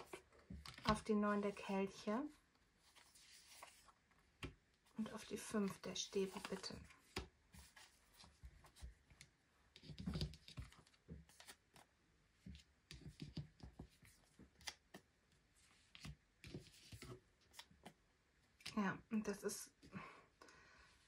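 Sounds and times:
cards laid on a cloth table: 2.5s - 18.8s
cards being shuffled: 2.9s - 4.6s, 5.2s - 8.9s, 13.0s - 15.0s.

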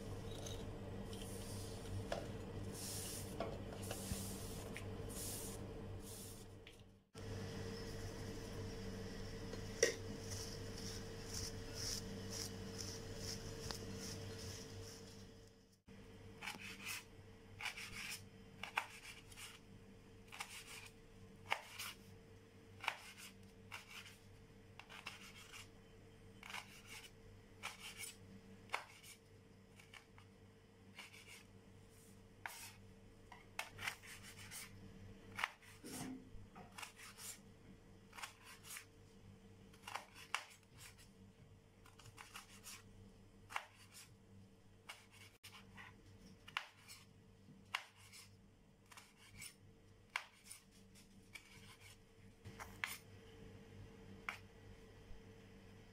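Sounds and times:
faint steady hum: 0.0s - 55.9s
knife cutting pepper: 16.4s - 19.6s, 20.3s - 20.9s, 22.8s - 24.2s, 38.1s - 38.9s, 39.7s - 41.0s, 41.8s - 42.8s, 48.9s - 53.0s.

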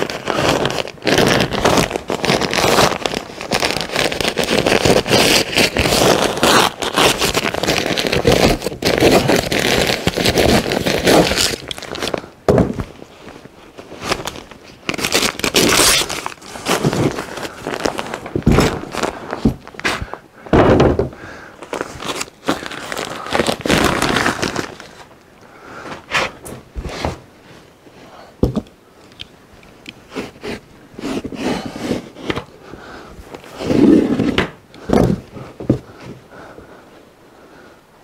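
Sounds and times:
paper crinkling and rustling: 0.0s - 25.2s.

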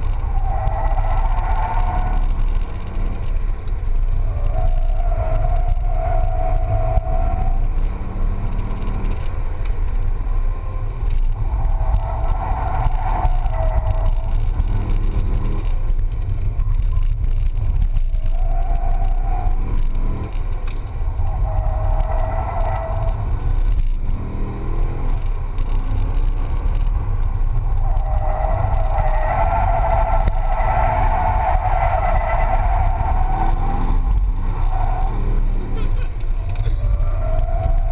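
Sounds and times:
car engine revving: 0.0s - 37.9s
tyres squealing: 27.4s - 37.9s.

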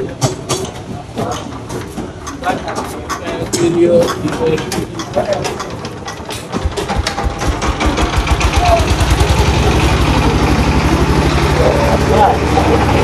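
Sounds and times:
motor engine running: 5.4s - 13.0s.

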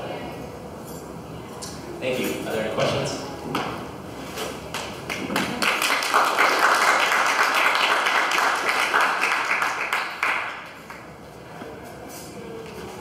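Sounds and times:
audience applauding: 5.0s - 11.1s.

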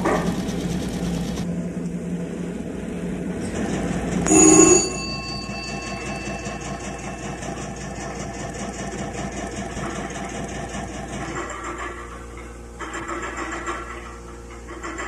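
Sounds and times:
machine whirring and ticking: 0.0s - 2.0s, 3.4s - 15.0s
bell ringing: 4.3s - 8.8s.

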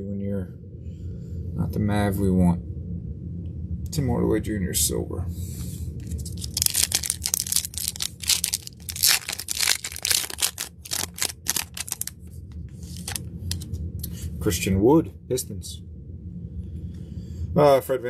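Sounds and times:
plastic wrapper tearing and crinkling: 6.0s - 12.2s, 12.9s - 13.6s.

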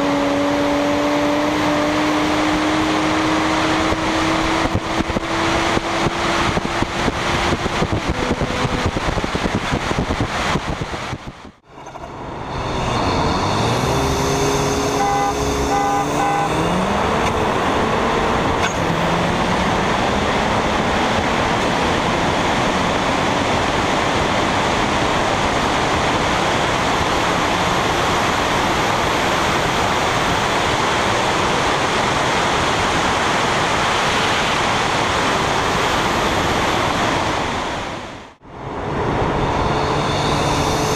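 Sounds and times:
car engine accelerating: 0.0s - 40.9s
road noise: 0.0s - 40.9s
short beeps: 11.7s - 16.8s
wind rushing: 33.6s - 40.9s.

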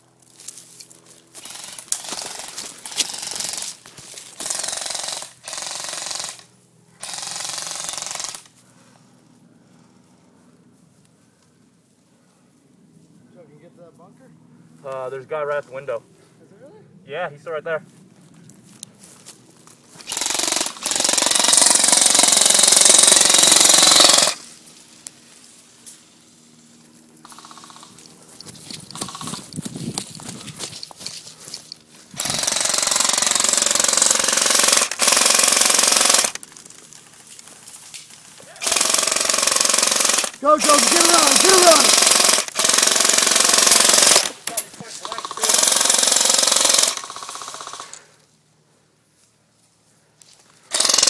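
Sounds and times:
airsoft rifle firing bursts: 1.4s - 3.8s, 4.4s - 8.6s, 20.0s - 24.5s, 32.2s - 36.7s, 38.6s - 48.0s, 50.7s - 51.0s.

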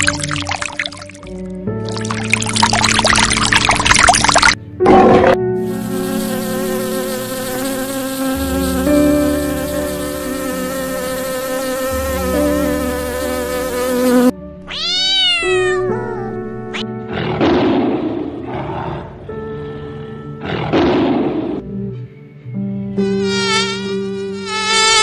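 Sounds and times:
background music: 0.0s - 25.0s
flying insect buzzing: 5.6s - 15.0s, 23.0s - 25.0s.

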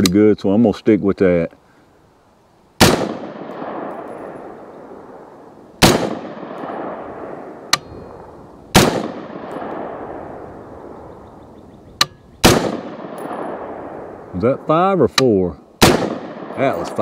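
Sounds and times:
rifle shots echoing: 2.8s - 11.5s, 12.4s - 14.9s, 15.8s - 17.0s.

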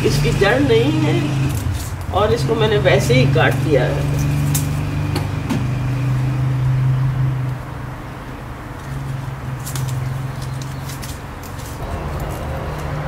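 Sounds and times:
pruning shears clicking: 0.1s - 5.4s, 8.7s - 13.0s.

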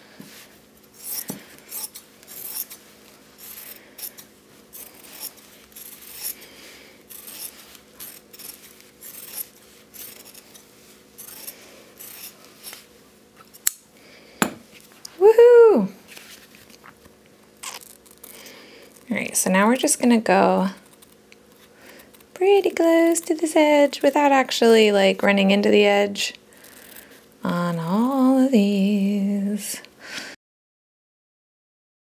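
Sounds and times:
scissors snipping fabric: 3.4s - 6.4s, 7.1s - 10.6s, 11.2s - 12.8s.

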